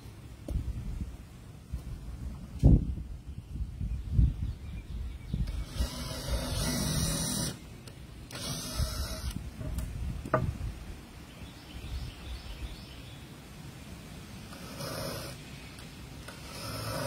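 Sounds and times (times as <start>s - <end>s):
power drill driving screws: 5.4s - 7.6s, 8.3s - 9.4s, 14.5s - 15.4s, 16.2s - 17.0s.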